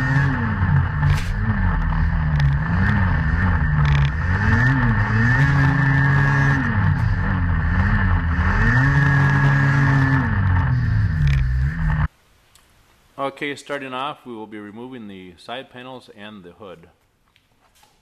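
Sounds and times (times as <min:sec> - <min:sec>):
snowmobile engine revving: 0:00.0 - 0:12.1.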